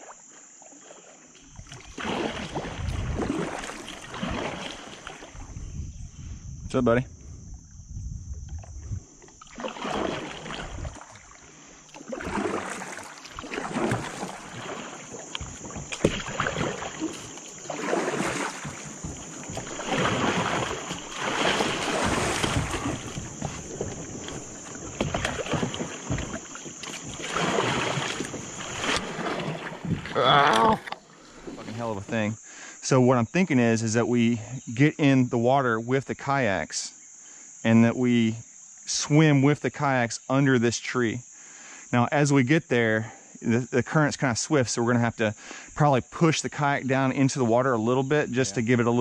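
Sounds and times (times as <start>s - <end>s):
paddle strokes splashing water: 0.0s - 5.6s, 8.5s - 32.3s.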